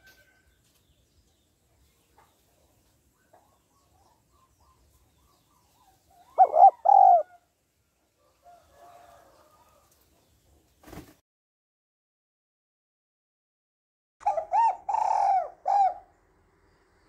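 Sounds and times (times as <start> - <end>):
dove cooing: 3.2 - 7.4, 14.2 - 16.1.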